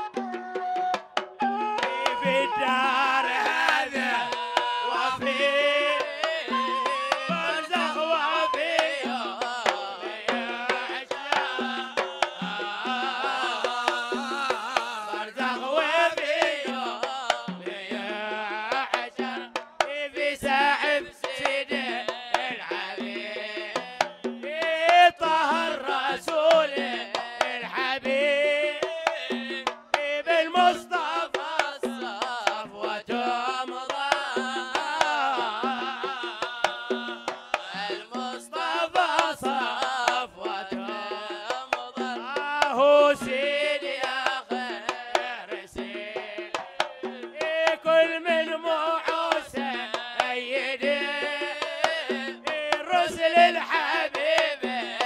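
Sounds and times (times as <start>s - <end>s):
flute melody: 0.0s - 3.6s, 5.3s - 9.6s
hand drum beat: 0.0s - 55.0s
men singing: 0.0s - 55.0s.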